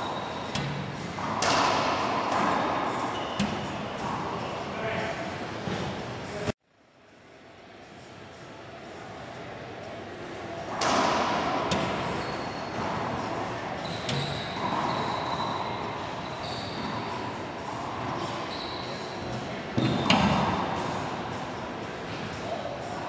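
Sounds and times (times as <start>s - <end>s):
sneakers squeaking on hardwood: 13.8s - 17.4s, 18.1s - 20.4s.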